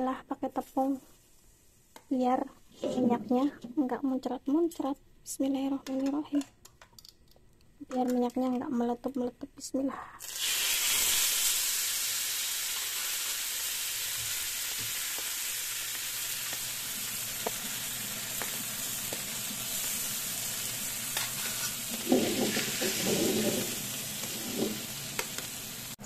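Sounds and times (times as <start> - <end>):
fish sizzling in hot oil: 10.2 - 26.0.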